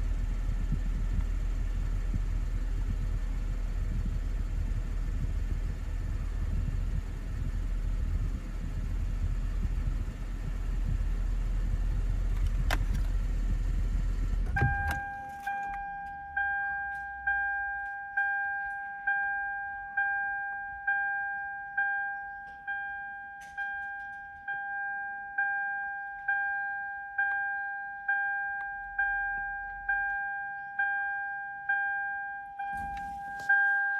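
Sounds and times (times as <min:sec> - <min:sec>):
car air conditioning blower: 0:00.0 - 0:17.6, 0:32.6 - 0:33.9
electronic warning chime: 0:14.6 - 0:33.9.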